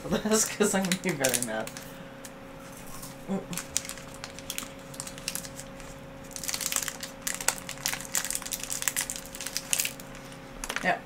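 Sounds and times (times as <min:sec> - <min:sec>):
chocolate candy crunching: 0:00.1 - 0:02.0, 0:02.9 - 0:11.0.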